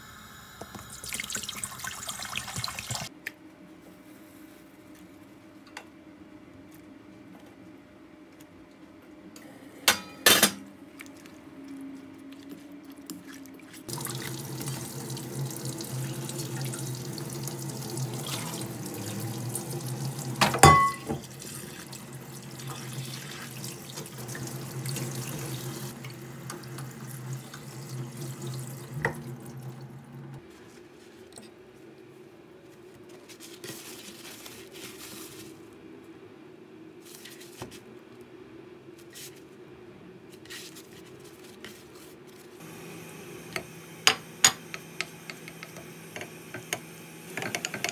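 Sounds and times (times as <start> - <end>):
cabbage leaves rinsed by hand: 0.8 - 3.1, 10.9 - 31.2, 33.1 - 35.8.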